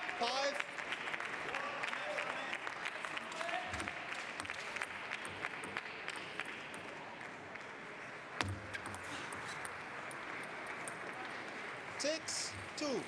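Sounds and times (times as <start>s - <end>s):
crowd applause: 0.0s - 7.7s.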